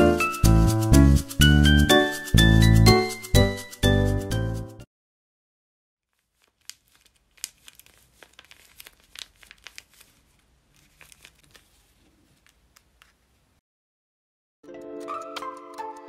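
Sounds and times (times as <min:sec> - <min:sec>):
paper squishies crinkling: 0:06.1 - 0:13.6.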